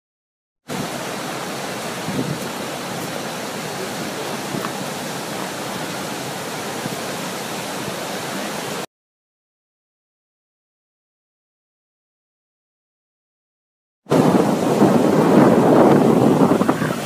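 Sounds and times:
large waterfall rushing: 0:00.7 - 0:08.9, 0:14.1 - 0:17.0.

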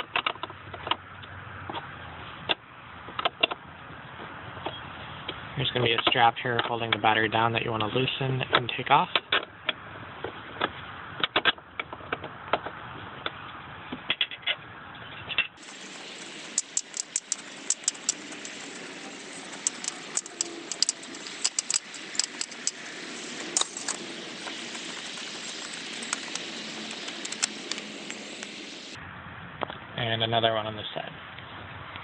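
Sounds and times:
steady hiss: 0:15.6 - 0:29.0.

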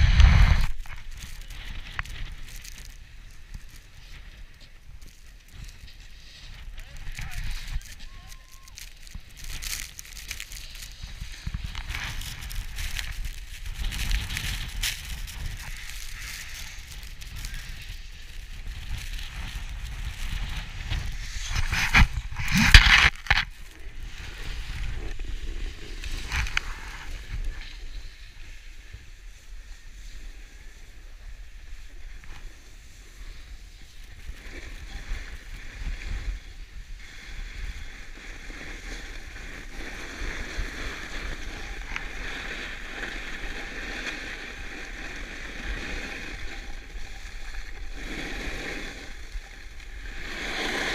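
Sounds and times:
wind buffeting microphone: 0:00.0 - 0:02.4
skis scraping over snow: 0:00.0 - 0:50.9.

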